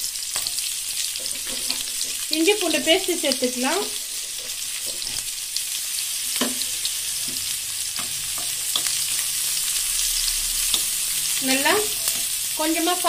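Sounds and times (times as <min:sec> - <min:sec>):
onions sizzling in hot oil: 0:00.0 - 0:13.0
wooden spatula scraping: 0:01.2 - 0:02.2.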